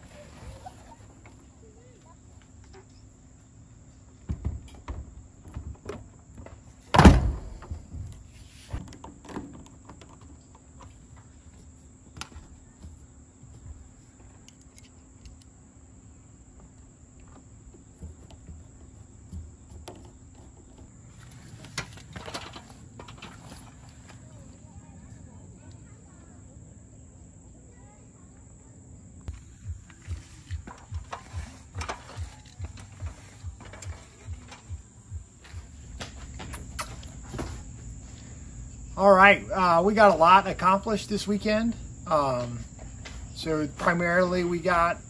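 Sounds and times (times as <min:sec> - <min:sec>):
loud thunk: 0:06.9 - 0:07.8.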